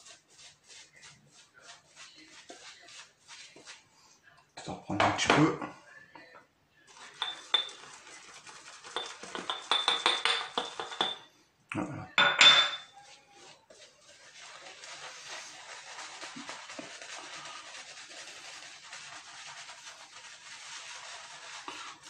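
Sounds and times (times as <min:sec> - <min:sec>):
brush scrubbing face: 0:00.0 - 0:04.8, 0:06.9 - 0:11.1, 0:12.9 - 0:22.0
shaving brush clinking in bowl: 0:07.0 - 0:11.3, 0:12.2 - 0:13.8.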